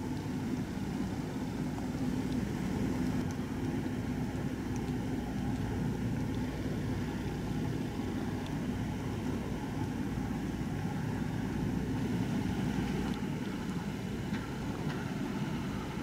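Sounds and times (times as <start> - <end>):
diesel engine drone: 0.0 - 16.0.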